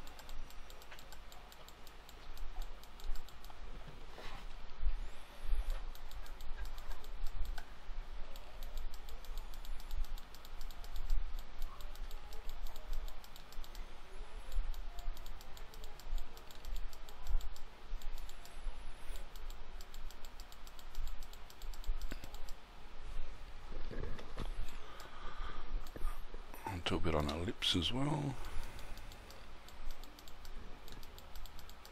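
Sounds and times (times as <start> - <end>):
computer keyboard and mouse clicking: 0.0 - 3.6, 5.6 - 7.7, 8.3 - 22.6, 28.4 - 31.9.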